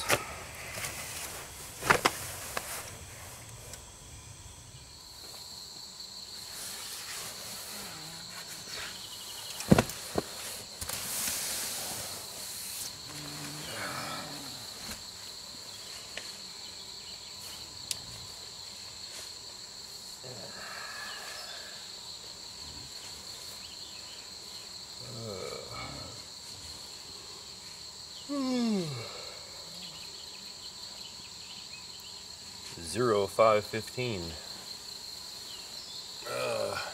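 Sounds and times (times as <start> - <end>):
night insects chirring: 0.0 - 36.9
soft rustles: 0.6 - 3.8
person groaning: 13.1 - 14.7, 25.0 - 26.2, 28.3 - 30.0, 36.2 - 36.9.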